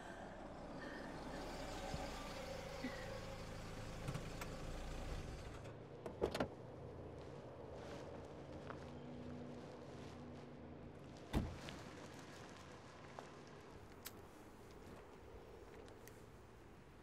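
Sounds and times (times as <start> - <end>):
car engine rumbling: 0.0 - 7.6.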